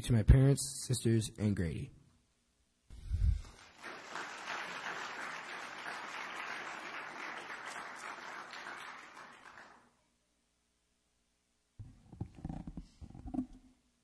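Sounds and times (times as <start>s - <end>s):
audience applauding: 3.5s - 9.9s.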